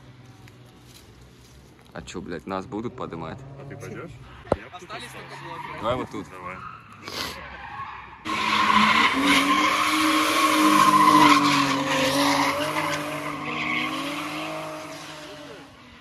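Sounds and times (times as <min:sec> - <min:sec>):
car engines revving hard: 0:02.4 - 0:16.0
tyres squealing: 0:04.8 - 0:15.5.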